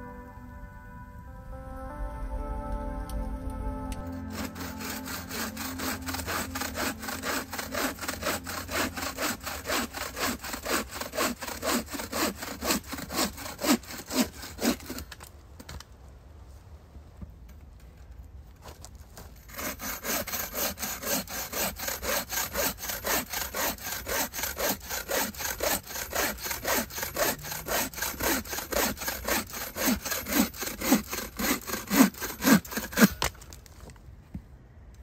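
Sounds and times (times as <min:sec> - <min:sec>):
bow saw cutting wood: 0:04.0 - 0:15.2, 0:19.2 - 0:33.4.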